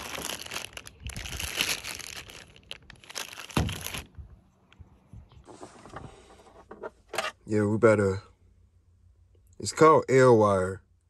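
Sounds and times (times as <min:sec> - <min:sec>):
plastic bags crinkling: 0:00.0 - 0:04.1.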